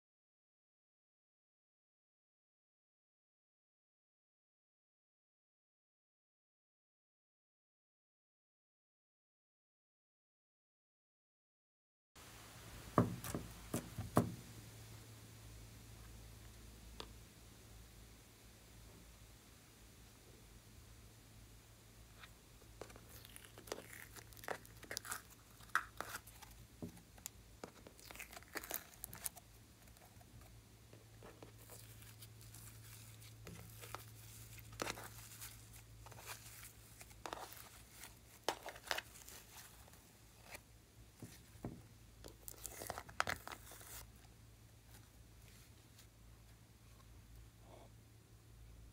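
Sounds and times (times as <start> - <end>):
slime crackling and tearing: 22.8 - 26.5, 27.7 - 29.4.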